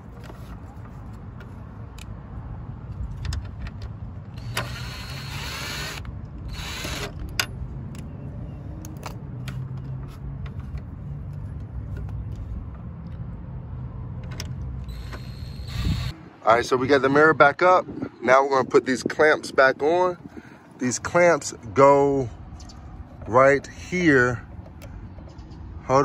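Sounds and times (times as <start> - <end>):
cordless drill motor whirring: 4.3 - 7.2, 14.9 - 16.2.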